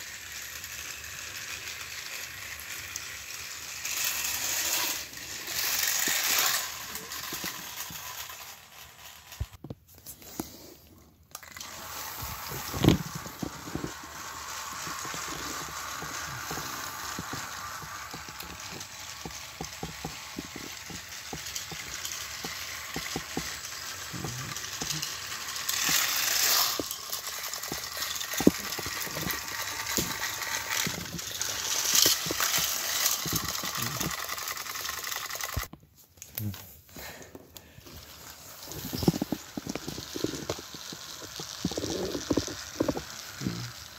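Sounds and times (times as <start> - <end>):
toy engines whirring along track: 0.0 - 35.8, 36.4 - 43.9
clattering small clicks: 11.3 - 36.4.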